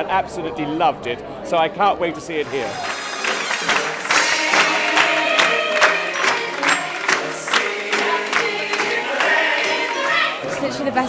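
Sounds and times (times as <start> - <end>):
pit orchestra: 2.4 - 10.5
sharp regular beats: 2.4 - 10.5
ensemble voices singing: 2.5 - 11.0.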